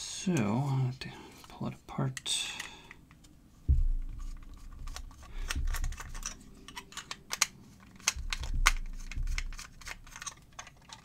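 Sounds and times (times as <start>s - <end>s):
dull low thumps: 3.6s - 7.1s, 7.9s - 10.4s
small clicks and taps on lamp: 4.0s - 11.0s.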